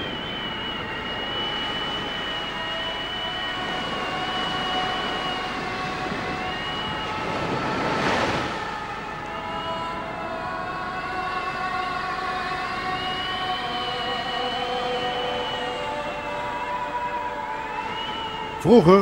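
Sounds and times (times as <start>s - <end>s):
wave crashing: 0.0s - 10.2s
surf rushing: 0.0s - 19.0s
wind howling: 0.0s - 19.0s.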